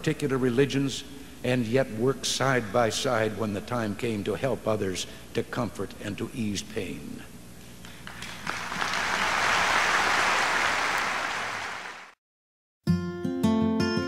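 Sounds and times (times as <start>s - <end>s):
large audience applauding: 7.9s - 12.2s
plucked guitar tune: 12.9s - 14.0s.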